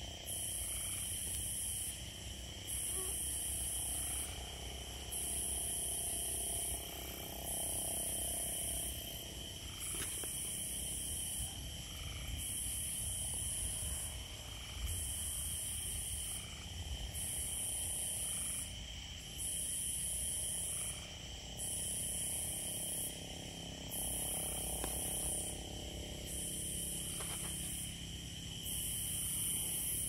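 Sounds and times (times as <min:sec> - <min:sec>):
pulsing high-pitched insect buzzing: 0:00.0 - 0:30.0
steady low insect trill: 0:00.0 - 0:30.0.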